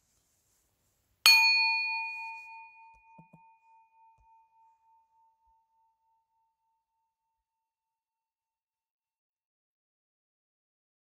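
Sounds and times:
meditation bell ringing: 0:01.3 - 0:07.2.

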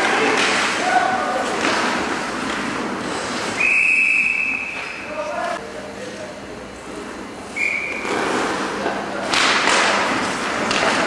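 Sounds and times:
voices of players and spectators: 0:00.0 - 0:02.9, 0:03.5 - 0:10.0
skates scraping ice: 0:07.9 - 0:11.0
sticks and puck knocking: 0:09.3 - 0:11.0.

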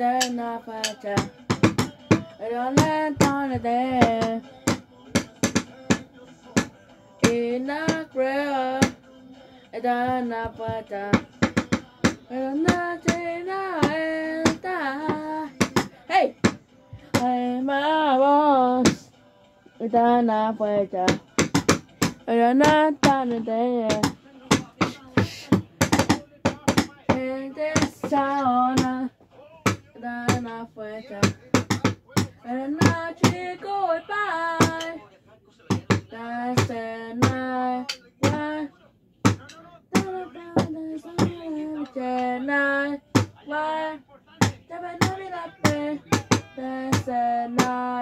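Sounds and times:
sharp knocks and taps: 0:10.1 - 0:13.2, 0:21.1 - 0:27.0
person singing long notes: 0:44.7 - 0:48.0.

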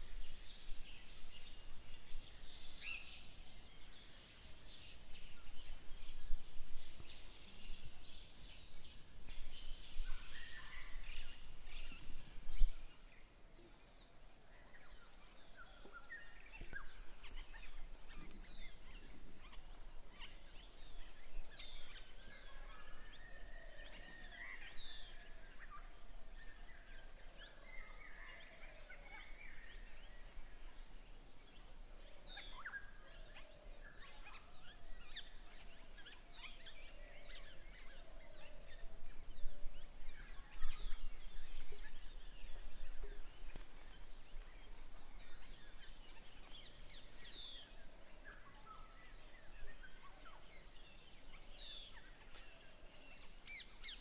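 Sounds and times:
birds chirping and calling: 0:14.6 - 0:54.0.

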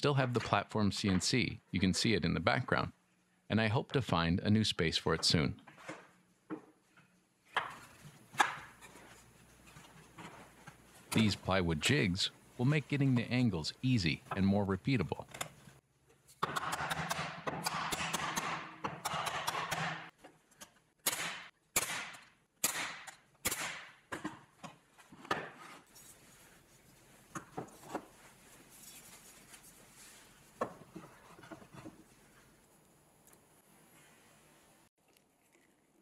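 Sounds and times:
plywood scraping: 0:27.6 - 0:32.5.

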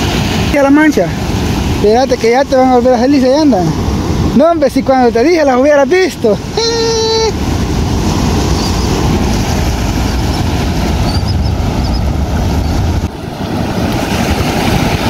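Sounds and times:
ocean surf on beach: 0:00.0 - 0:15.0
wind on microphone: 0:00.0 - 0:15.0.

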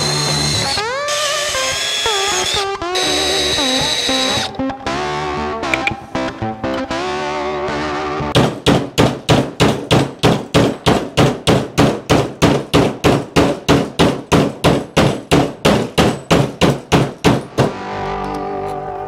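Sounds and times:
hammer clanging on steel: 0:08.4 - 0:17.8.

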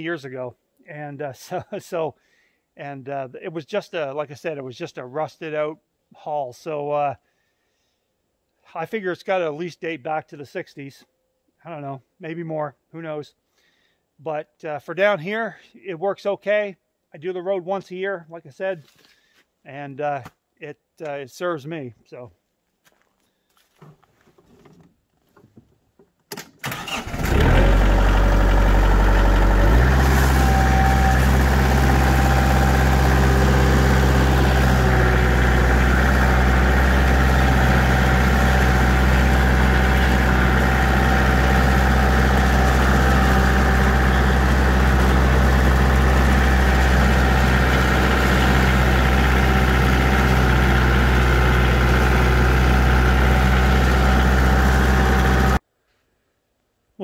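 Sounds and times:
diesel engine cranking: 0:26.6 - 0:55.6
tractor diesel engine running: 0:26.6 - 0:55.6.

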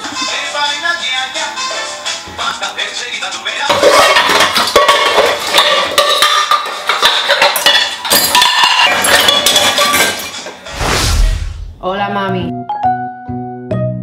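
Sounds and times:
pots and pans clattering: 0:03.7 - 0:10.6.

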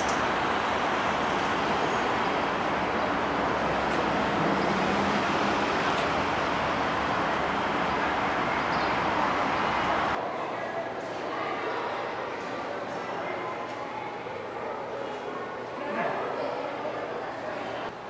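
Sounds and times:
road and wind noise: 0:00.0 - 0:10.2.

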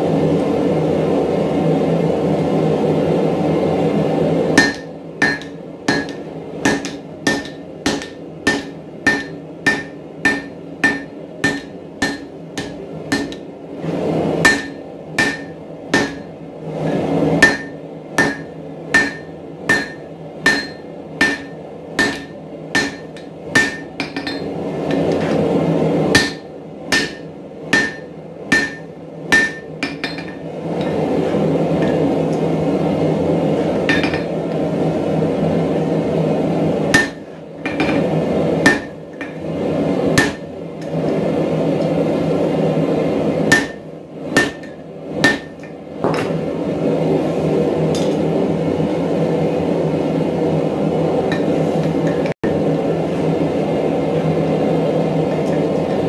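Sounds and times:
hammer striking steel on anvil: 0:04.6 - 0:13.5, 0:14.4 - 0:16.3, 0:17.4 - 0:25.4, 0:26.2 - 0:31.0, 0:33.9 - 0:34.4, 0:36.9 - 0:38.0, 0:38.6 - 0:39.4, 0:40.2 - 0:40.5, 0:43.5 - 0:43.8, 0:44.4 - 0:46.4.

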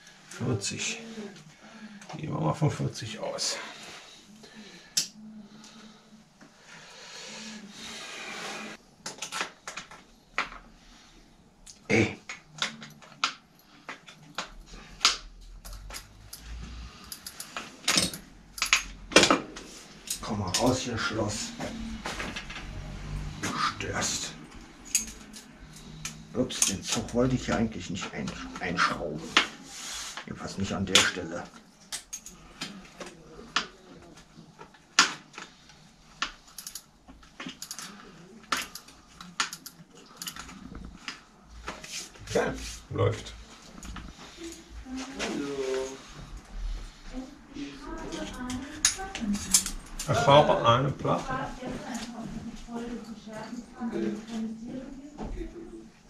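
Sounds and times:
sharp clicks and metallic clinks: 0:15.6 - 0:18.9, 0:24.9 - 0:26.8, 0:36.5 - 0:40.5, 0:48.4 - 0:49.8
small metallic clicks and ticks: 0:36.2 - 0:40.5.

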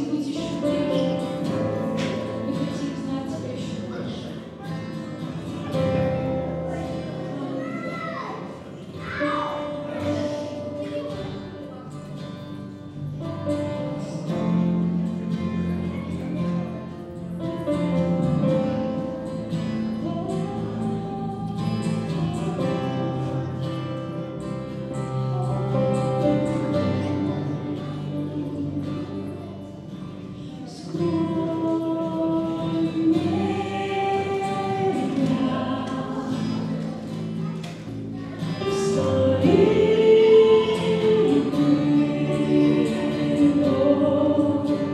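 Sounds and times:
acoustic guitar: 0:00.0 - 0:44.9
keyboard: 0:00.0 - 0:44.9
group singing: 0:25.4 - 0:29.6, 0:30.8 - 0:37.4, 0:38.4 - 0:44.9.

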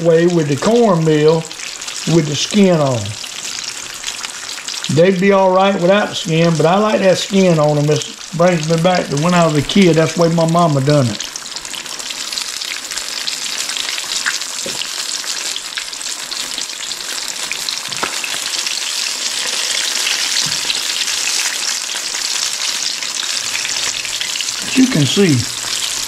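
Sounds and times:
fish frying in hot grease: 0:00.0 - 0:26.0
grease popping: 0:06.3 - 0:26.0.

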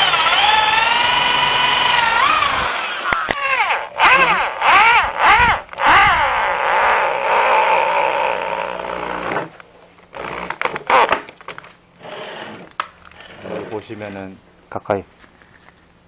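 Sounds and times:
electric drill boring into wood: 0:00.0 - 0:09.5, 0:10.2 - 0:11.1.

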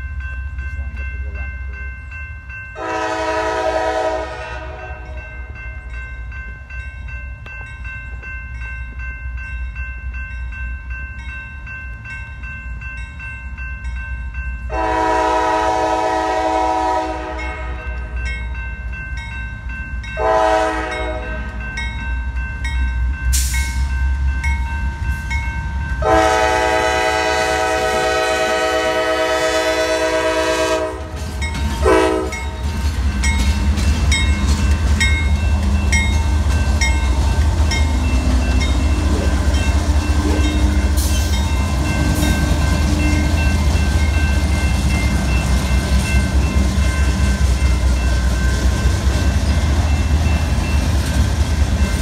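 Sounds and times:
locomotive engine and wheels: 0:00.0 - 0:52.0
locomotive air horn blasts: 0:02.8 - 0:05.2, 0:14.7 - 0:18.0, 0:20.2 - 0:21.5, 0:26.0 - 0:31.2, 0:31.8 - 0:32.5.

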